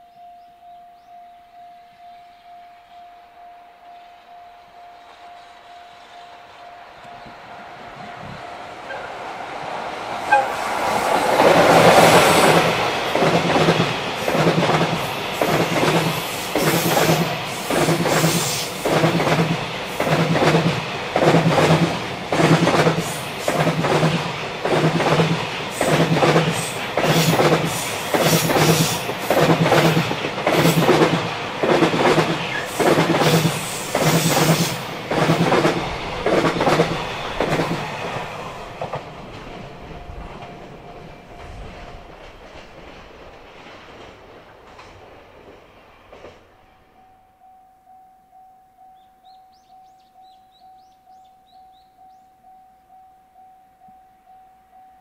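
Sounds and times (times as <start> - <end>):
electric locomotive passing: 0.0 - 54.8
train wheels clacking over rail joints: 10.0 - 46.5.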